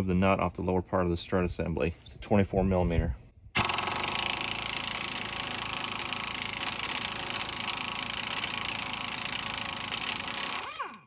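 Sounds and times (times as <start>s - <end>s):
air impact wrench rattling: 3.6s - 11.0s.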